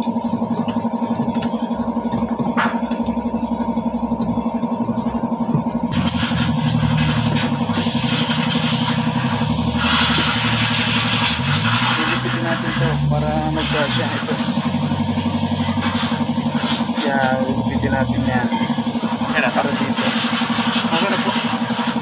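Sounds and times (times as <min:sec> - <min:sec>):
engine idling: 0:00.0 - 0:22.0
broad hiss: 0:06.0 - 0:22.0.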